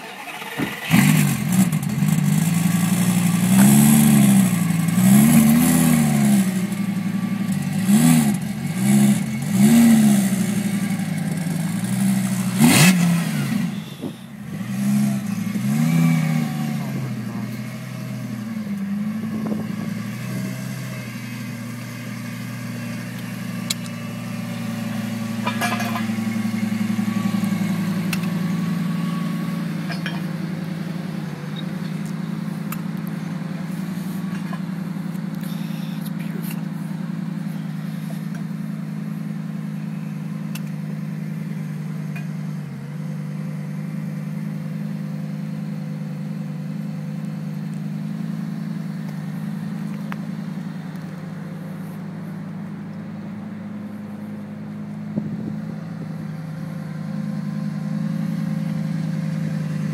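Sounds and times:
car engine idling: 0:00.0 - 0:59.9.

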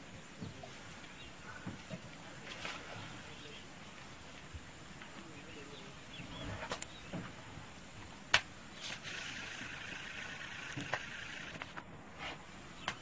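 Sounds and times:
faint outdoor background noise: 0:00.0 - 0:13.0
steady high hiss: 0:00.0 - 0:13.0.

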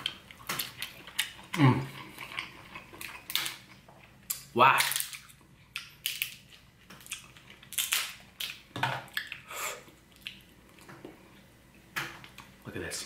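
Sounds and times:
crab shell cracking: 0:04.3 - 0:09.4.

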